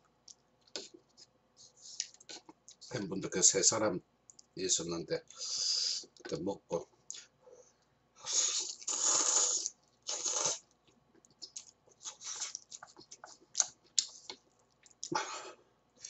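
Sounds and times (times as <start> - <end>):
person slurping noodles: 8.2 - 10.6
chewing and lip-smacking: 8.4 - 15.2.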